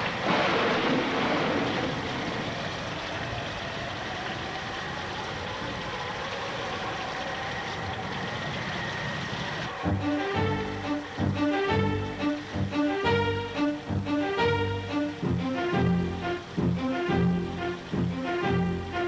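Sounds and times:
wind: 0.0 - 10.3
rain: 0.0 - 19.0
violin music: 9.7 - 19.0.

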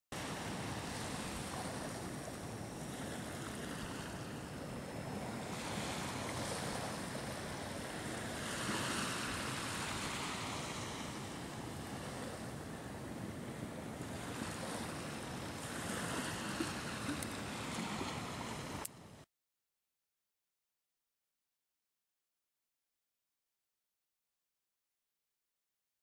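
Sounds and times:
surf washing onto beach: 0.2 - 18.8
wind on microphone: 0.2 - 18.9.

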